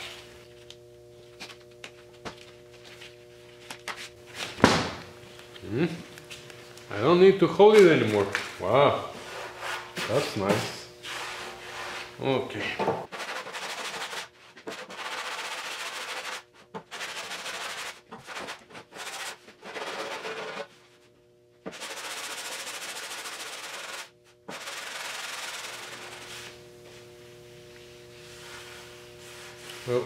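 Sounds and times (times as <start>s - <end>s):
sanding block rubbing filler: 13.1s - 20.7s, 21.7s - 26.6s.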